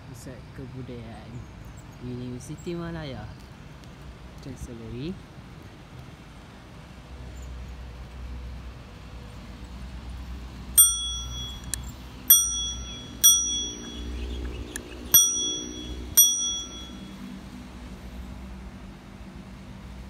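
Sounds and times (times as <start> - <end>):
bicycle bell ringing: 10.8 - 14.4, 15.1 - 17.3.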